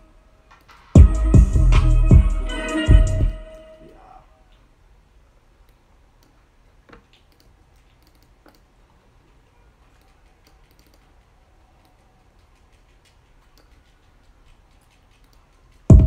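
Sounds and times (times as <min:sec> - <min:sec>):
typing on computer keyboard: 0:09.9 - 0:15.9.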